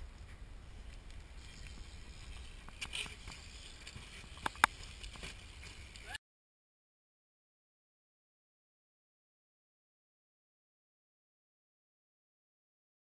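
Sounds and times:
bike tyres rumbling: 0:00.0 - 0:06.1.

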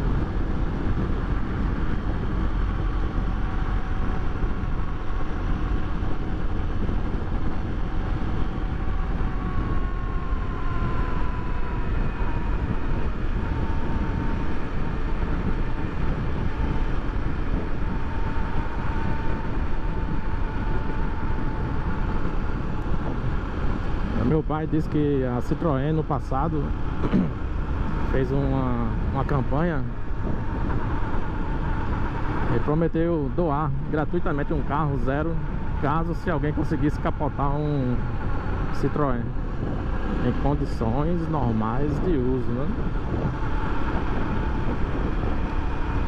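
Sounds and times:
motorcycle engine running: 0:00.0 - 0:46.0
wind rush on microphone: 0:00.0 - 0:46.0.

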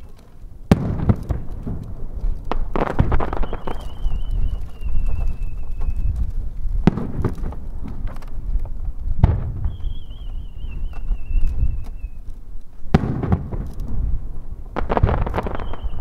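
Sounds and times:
whistling firework shell: 0:00.0 - 0:00.2, 0:03.0 - 0:06.4, 0:09.2 - 0:12.2, 0:15.0 - 0:16.0
firework booms: 0:00.0 - 0:12.2, 0:12.9 - 0:16.0
firework crackles: 0:00.0 - 0:16.0.

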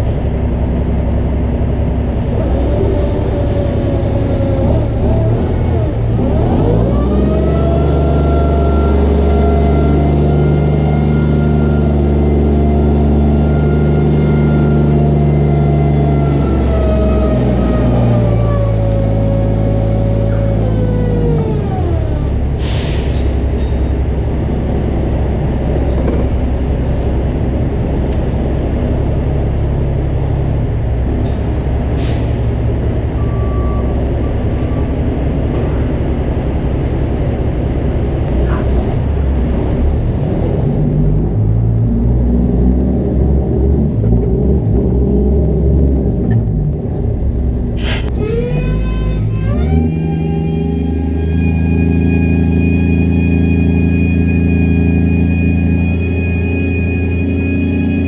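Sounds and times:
diesel truck engine running: 0:00.0 - 0:58.0
air brake hisses: 0:22.6 - 0:23.4, 0:32.0 - 0:32.5, 0:47.8 - 0:48.1.

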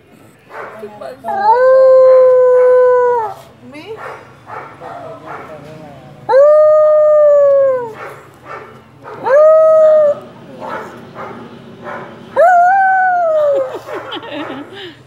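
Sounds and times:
dog howling: 0:01.2 - 0:03.5, 0:06.3 - 0:08.0, 0:09.0 - 0:13.8.

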